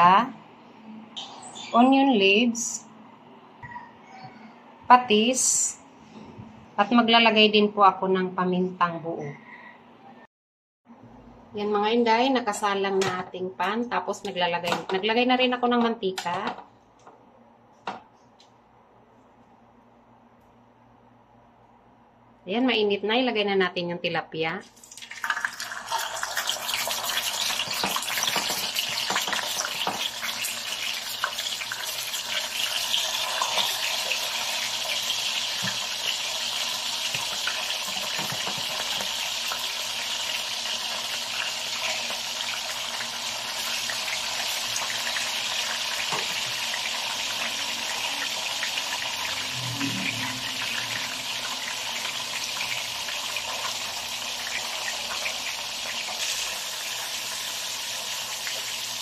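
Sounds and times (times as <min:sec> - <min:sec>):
fish sizzling in hot oil: 0:24.8 - 0:59.0.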